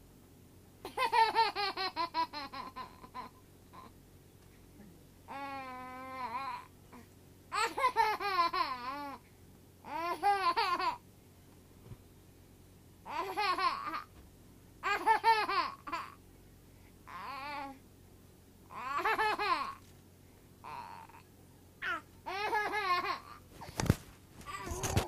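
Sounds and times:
baby laughing: 0.8 - 3.9, 7.5 - 9.2, 9.9 - 11.0, 13.1 - 14.1, 14.8 - 16.2, 18.7 - 19.8, 21.8 - 23.4.

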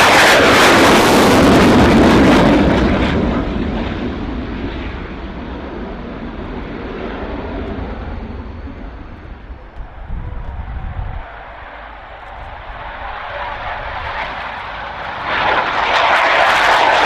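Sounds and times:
fighter jet passing low: 0.0 - 17.0.

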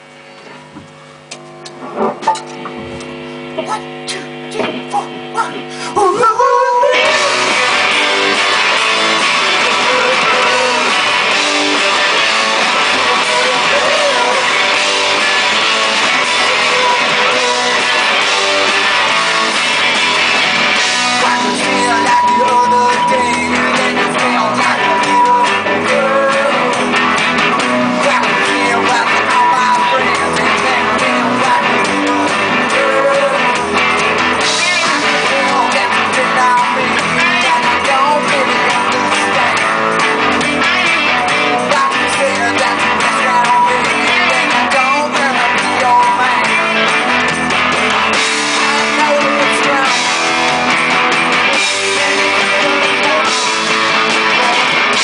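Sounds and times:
electric guitars: 0.0 - 55.0
drum kit: 7.0 - 55.0.

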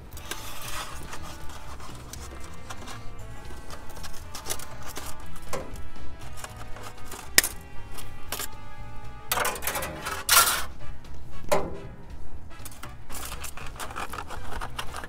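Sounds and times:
foil crinkling: 0.0 - 7.6, 12.6 - 15.0
wire twisting clicks and scrapes: 0.0 - 8.6, 9.3 - 10.7, 12.5 - 15.0.

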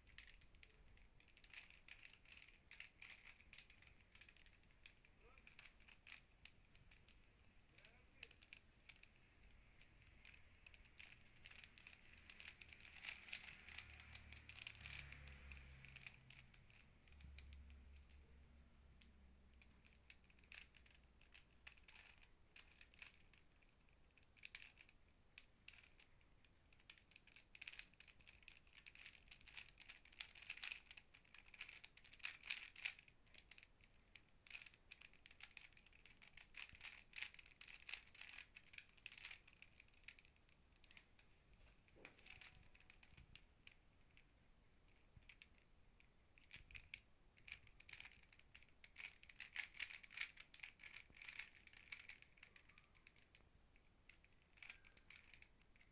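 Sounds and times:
puzzle cube layers clicking: 0.0 - 55.9.

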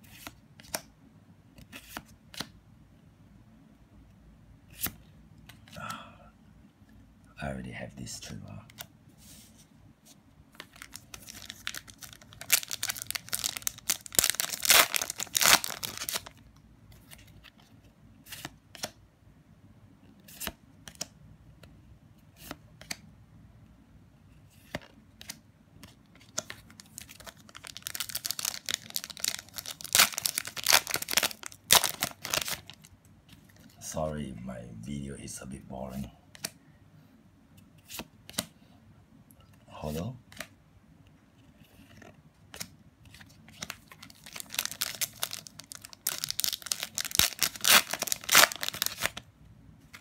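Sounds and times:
foil wrappers tearing and crinkling: 10.8 - 16.4, 26.8 - 32.8, 43.6 - 49.2.

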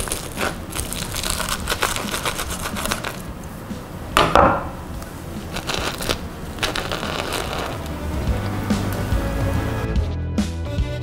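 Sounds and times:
knife cutting crunchy crust: 0.0 - 3.3.

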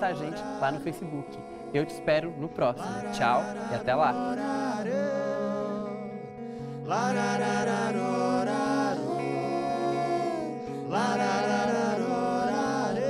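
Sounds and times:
electric guitar playing: 0.0 - 13.0
wordless sung notes: 0.0 - 13.0.

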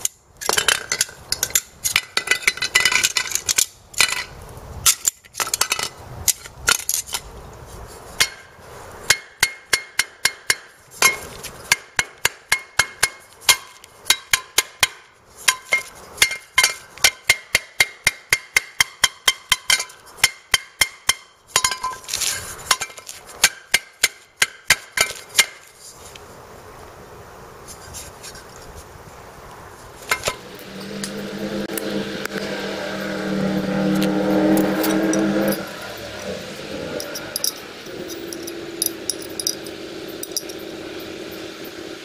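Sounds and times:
sharp metallic knocks on muffler: 9.1 - 21.9
metal clinks: 37.0 - 40.7.

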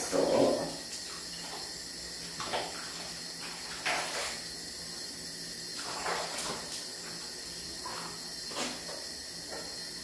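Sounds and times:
water sloshing in plastic basin: 0.1 - 4.6, 5.8 - 9.8
water splashes: 0.3 - 4.4.

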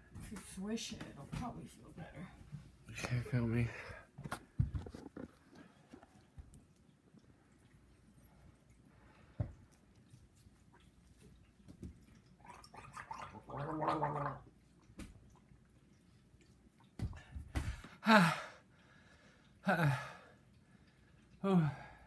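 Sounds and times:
man gargling water: 12.4 - 14.6, 18.0 - 18.6
man groaning: 18.0 - 18.5.

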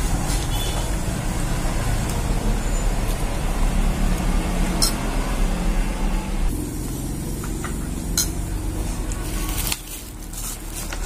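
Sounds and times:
low rumbling background noise: 0.0 - 11.0.

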